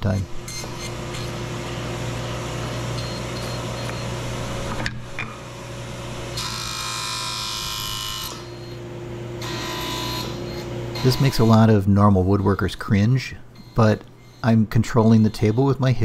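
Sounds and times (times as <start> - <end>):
table saw running: 0.4 - 11.5.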